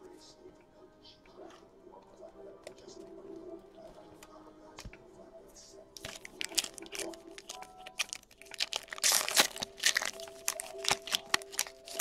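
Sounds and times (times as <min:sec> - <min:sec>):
faint background music: 0:00.0 - 0:12.0
foil wrapper tearing and crinkling: 0:06.0 - 0:12.0.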